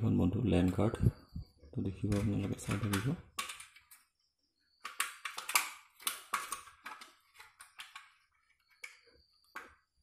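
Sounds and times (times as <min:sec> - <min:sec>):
circuit boards clicking and tapping: 0:01.8 - 0:04.2, 0:04.8 - 0:10.0.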